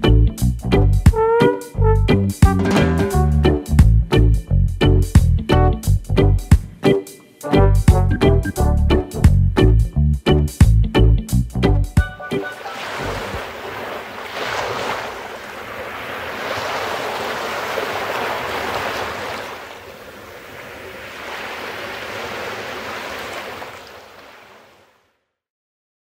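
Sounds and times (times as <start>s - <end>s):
sea waves washing onto shore: 12.4s - 25.0s.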